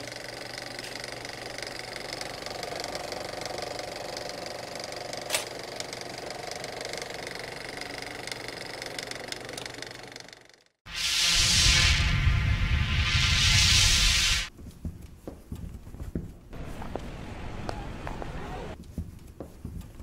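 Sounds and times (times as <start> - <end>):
film projector clatter: 0.0 - 10.8.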